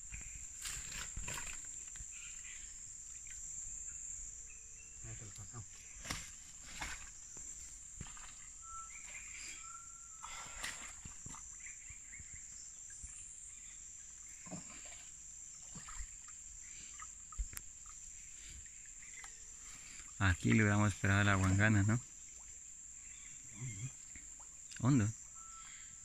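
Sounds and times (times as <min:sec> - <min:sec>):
rustling through brush and mud: 0:00.0 - 0:03.0, 0:05.7 - 0:09.6
insects droning: 0:00.0 - 0:26.0
thin whistled call: 0:08.2 - 0:12.4, 0:24.8 - 0:26.0.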